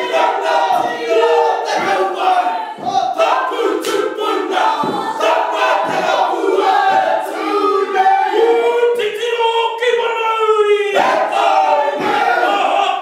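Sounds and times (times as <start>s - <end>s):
heavy beat: 0.0s - 8.9s
group chanting and shouting: 0.0s - 13.0s.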